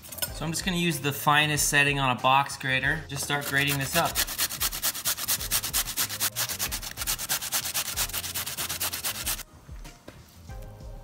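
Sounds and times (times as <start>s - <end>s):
cucumber grating on metal grater: 3.3s - 9.4s.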